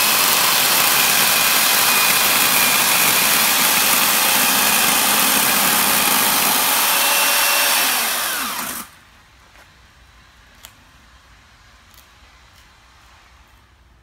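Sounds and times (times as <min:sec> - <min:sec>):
chainsaw cutting wood: 0:00.0 - 0:09.0.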